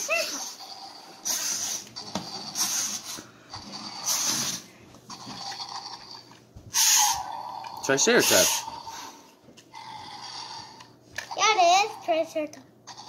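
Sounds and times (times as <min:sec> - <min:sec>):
toy dinosaur electronic roar: 0:06.8 - 0:09.1, 0:09.7 - 0:11.4.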